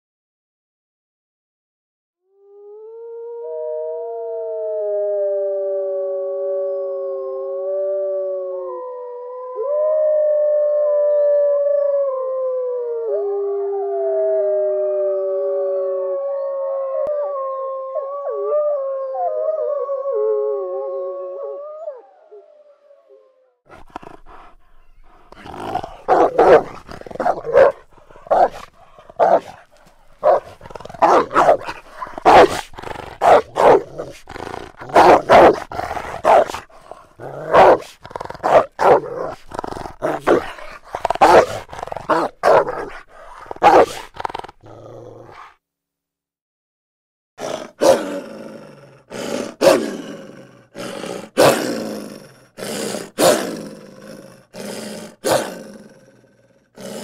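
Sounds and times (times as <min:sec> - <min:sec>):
wolf howling: 0:02.3 - 0:23.5, 0:24.2 - 0:44.1
wolf barking: 0:23.7 - 0:44.2, 0:45.2 - 0:45.5, 0:47.4 - 0:48.2, 0:49.2 - 0:50.0, 0:50.8 - 0:51.8, 0:52.6 - 0:53.6, 0:54.6 - 0:55.6, 0:56.8 - 0:57.0.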